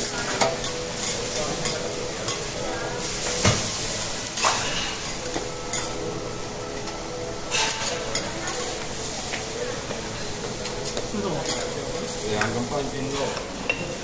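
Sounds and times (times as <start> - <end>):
cabbage sizzling on griddle: 0.0 - 14.0
metal spatulas scraping and clacking: 7.5 - 8.6.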